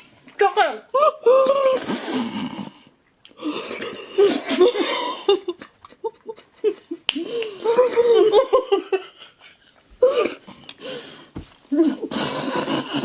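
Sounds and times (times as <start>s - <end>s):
women laughing: 3.6s - 10.4s.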